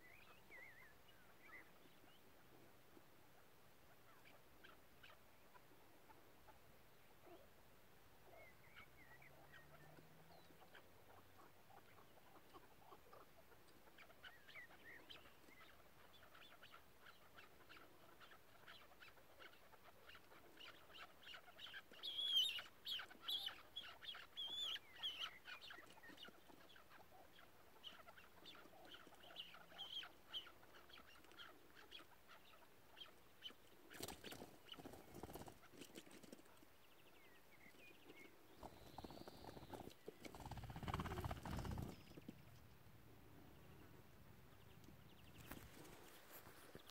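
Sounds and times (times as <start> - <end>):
partridge clucking calls: 8.3 - 42.7.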